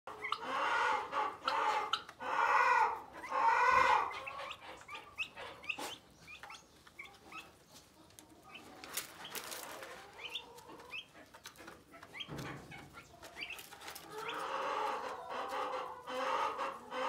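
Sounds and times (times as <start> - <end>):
turkeys calling: 0.1 - 17.0.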